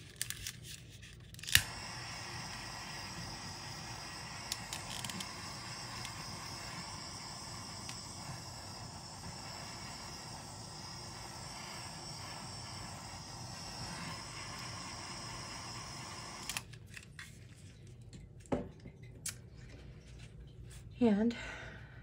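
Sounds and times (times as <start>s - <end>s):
background hiss: 1.6s - 16.6s.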